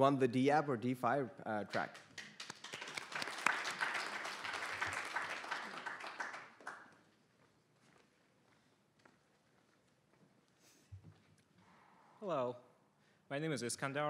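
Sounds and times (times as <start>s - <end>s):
audience applauding: 1.8s - 7.0s.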